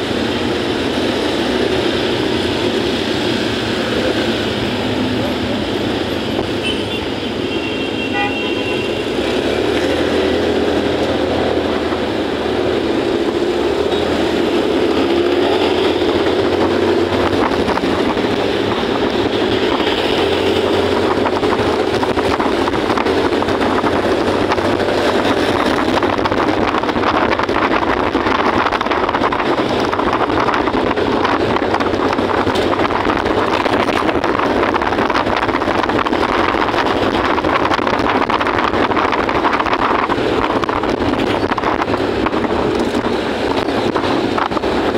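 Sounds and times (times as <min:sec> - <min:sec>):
motorcycle engine: 0:00.0 - 0:44.9
road noise: 0:00.0 - 0:44.9
wind rushing on microphone: 0:00.0 - 0:44.9.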